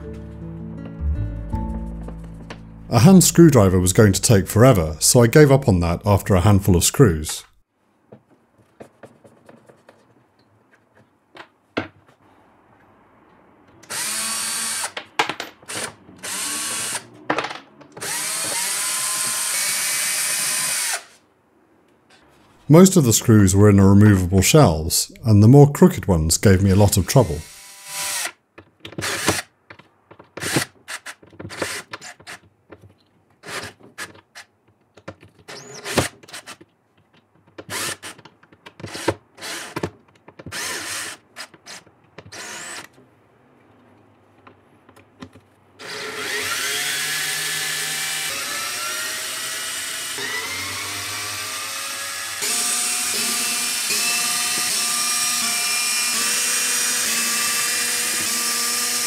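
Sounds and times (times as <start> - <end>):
cordless drill whining: 18.0 - 21.2, 35.5 - 36.5, 40.5 - 42.9, 45.8 - 59.0.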